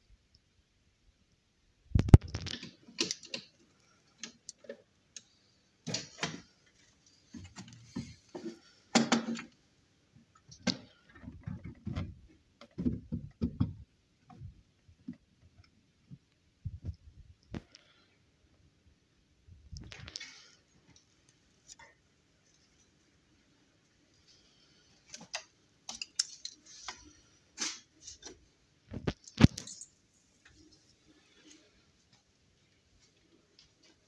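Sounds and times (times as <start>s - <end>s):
hard plastic clicking and knocking: 10.6s - 15.2s.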